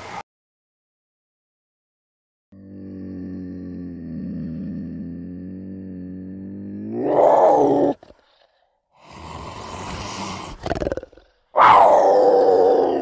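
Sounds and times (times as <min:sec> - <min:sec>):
big cat growling: 0:02.6 - 0:13.0
big cat hissing rasping call: 0:09.0 - 0:13.0.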